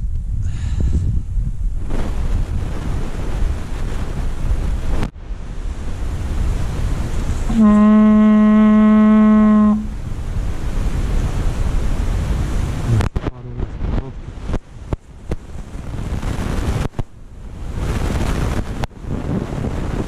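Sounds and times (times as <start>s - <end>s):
wind on microphone: 0.0s - 20.0s
hunting horn held note: 7.5s - 9.9s.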